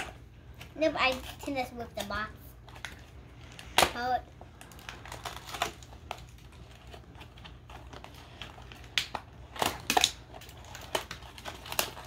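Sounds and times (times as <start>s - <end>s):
packaging being ripped and crunched: 2.7s - 12.0s.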